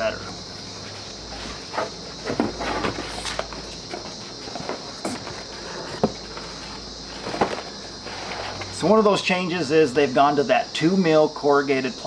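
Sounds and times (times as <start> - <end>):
plastic sheets knocking and scuffing: 0.8 - 8.8.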